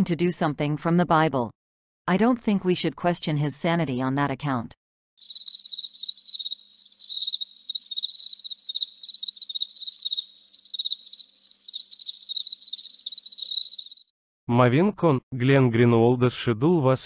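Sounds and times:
crickets chirping: 5.2 - 14.1.

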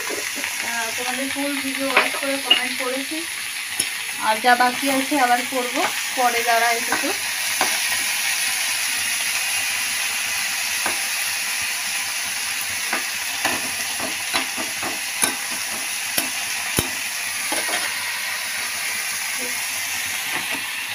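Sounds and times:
greens sizzling in oil: 0.0 - 20.9
spatula scraping a pan: 12.9 - 18.1.

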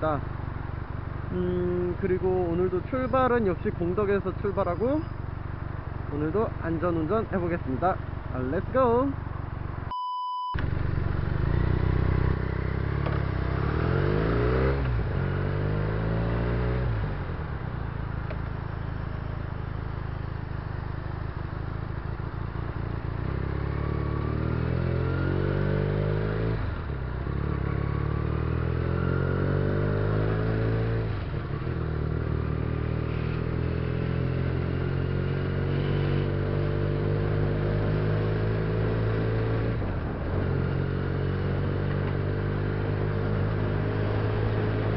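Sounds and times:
motorcycle engine accelerating: 10.6 - 44.9.

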